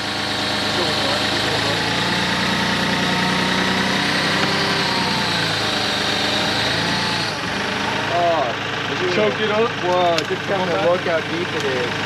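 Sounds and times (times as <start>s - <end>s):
tractor diesel engine under load: 0.0s - 12.0s.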